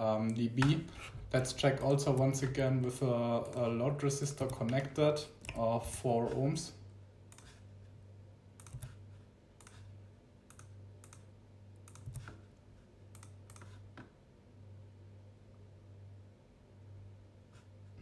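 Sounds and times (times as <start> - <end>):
faint low hum: 0.0 - 18.0
mouse and keyboard clicks: 8.6 - 9.0, 11.9 - 12.4, 13.1 - 13.8.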